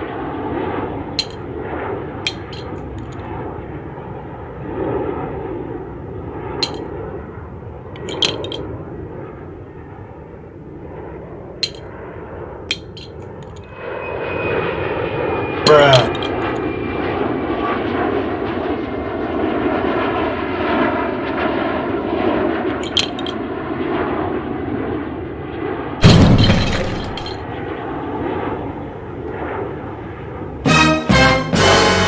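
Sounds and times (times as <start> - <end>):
airplane engine drone: 0.0 - 32.0
loud deep thud: 26.0 - 27.1.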